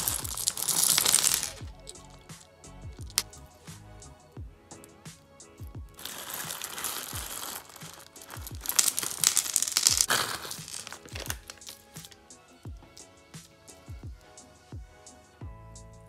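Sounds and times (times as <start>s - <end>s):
plastic bags crinkling: 0.0s - 1.6s, 6.0s - 12.2s
background music with steady beat: 0.0s - 16.0s.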